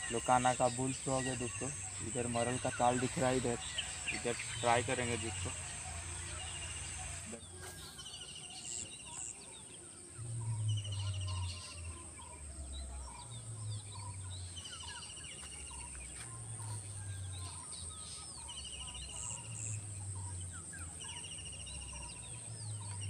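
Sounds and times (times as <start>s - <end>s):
high-pitched insect drone: 0.0s - 8.0s
birds trilling and chirping: 0.0s - 23.0s.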